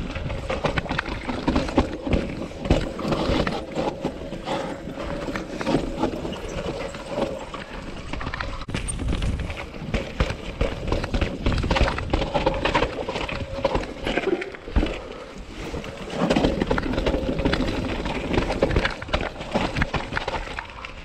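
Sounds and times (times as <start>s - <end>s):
bike frame rattling: 0.0s - 21.0s
bike tyres rolling over rock: 0.0s - 21.0s
wheels knocking on rocks: 0.0s - 21.0s.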